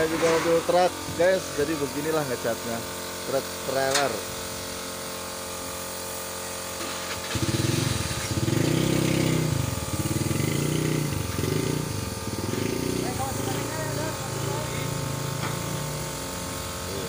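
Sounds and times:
paint spray gun hissing: 0.0s - 17.0s
engine running unevenly: 4.8s - 17.0s.

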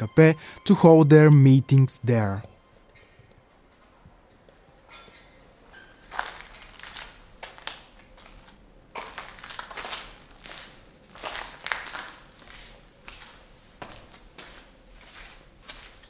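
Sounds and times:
footsteps crunching over rubble: 6.1s - 16.0s.

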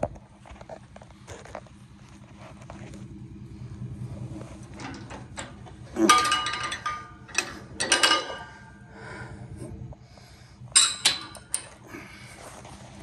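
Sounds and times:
low steady hum: 0.0s - 13.0s
metal hook clinking on steel rail: 4.8s - 8.8s, 10.8s - 11.8s.

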